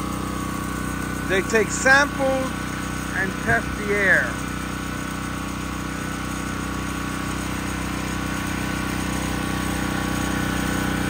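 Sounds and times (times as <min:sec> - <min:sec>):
generator engine humming: 0:00.0 - 0:11.0.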